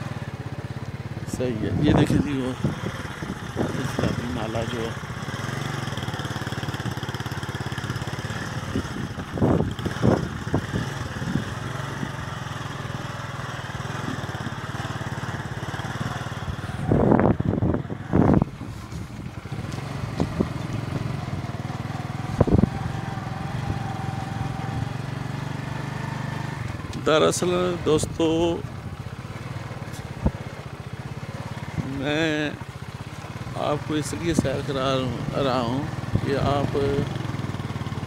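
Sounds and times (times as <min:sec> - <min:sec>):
motorcycle engine running: 0:00.0 - 0:38.0.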